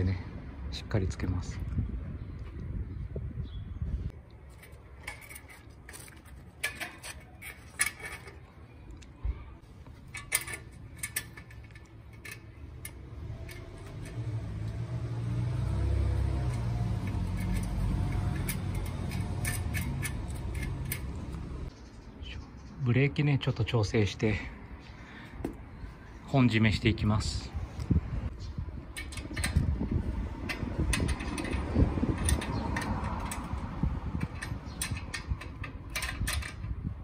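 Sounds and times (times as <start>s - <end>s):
small metallic clicks and clinks: 9.9s - 15.0s, 15.6s - 21.7s, 30.4s - 36.8s.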